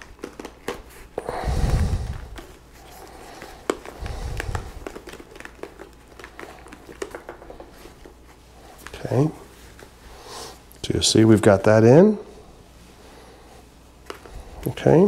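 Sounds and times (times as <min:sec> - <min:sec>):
fabric and plastic rustling: 0:00.0 - 0:10.7.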